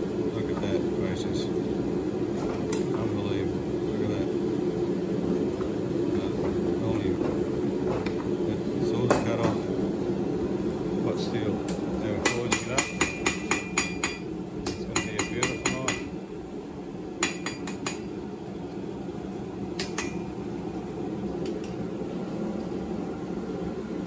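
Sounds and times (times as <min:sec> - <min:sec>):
hammer ringing on anvil: 0:12.2 - 0:14.3, 0:14.9 - 0:16.1, 0:17.2 - 0:18.1.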